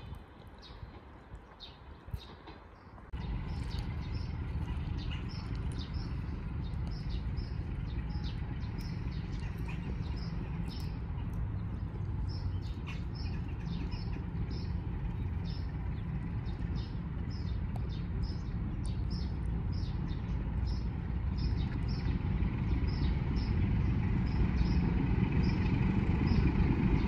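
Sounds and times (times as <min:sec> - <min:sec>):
locomotive rumbling: 0:00.0 - 0:27.0
small birds chirping: 0:00.0 - 0:27.0.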